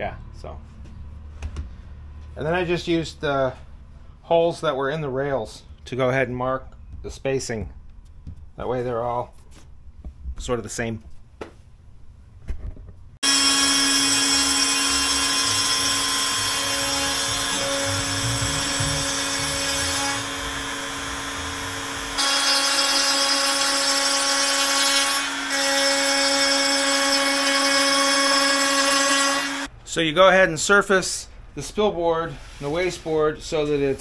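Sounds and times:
router spinning with high whine: 0:13.2 - 0:23.6.

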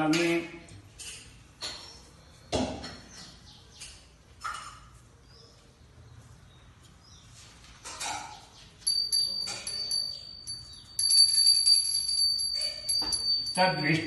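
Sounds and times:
hand bell ringing rapidly: 0:08.8 - 0:14.0
handling noise: 0:08.8 - 0:14.0.

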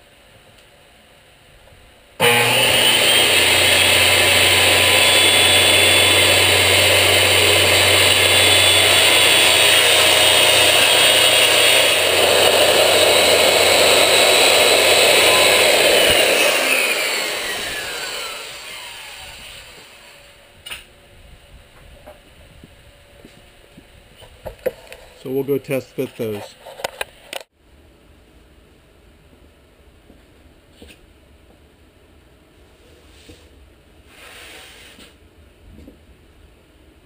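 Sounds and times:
saw blade spinning down: 0:02.2 - 0:20.2
circular saw cutting plywood: 0:02.2 - 0:20.3.

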